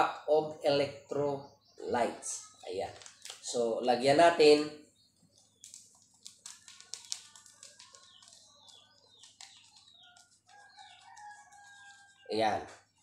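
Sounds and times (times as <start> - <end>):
plastic sachet crinkling: 2.9 - 3.5, 5.3 - 11.2.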